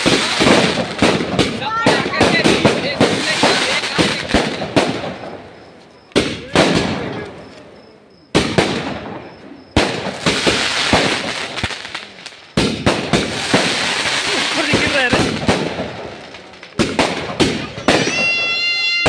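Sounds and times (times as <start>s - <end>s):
fireworks loud bangs: 0.0s - 7.5s, 8.3s - 19.0s
firecracker crackles and pops: 0.0s - 19.0s.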